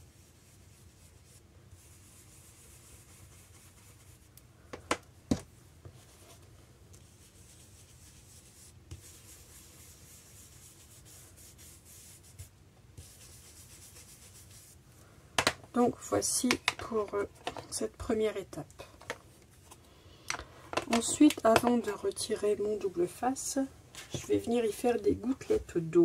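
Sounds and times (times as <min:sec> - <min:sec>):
brushes swishing on cardstock: 0:00.0 - 0:04.4, 0:05.8 - 0:14.8.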